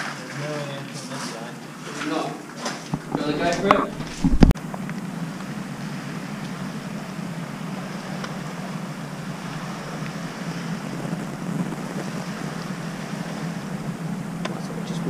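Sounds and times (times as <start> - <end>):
wind on microphone: 2.9 - 4.6, 5.2 - 15.0
low drone: 3.0 - 15.0.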